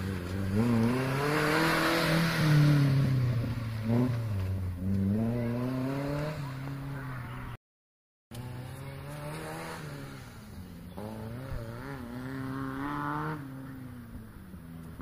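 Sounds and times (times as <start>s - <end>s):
engine revving: 0.0s - 7.5s, 8.3s - 14.1s.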